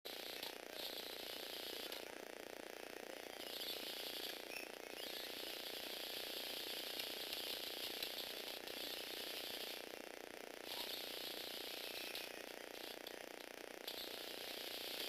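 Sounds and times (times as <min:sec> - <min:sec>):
electric motor and gears whirring: 0:00.1 - 0:15.0.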